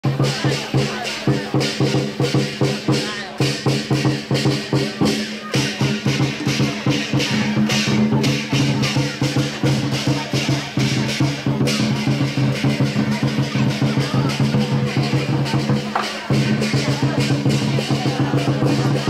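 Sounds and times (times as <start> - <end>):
cymbals clashing: 0.0 - 19.0
drums beating: 0.0 - 19.0.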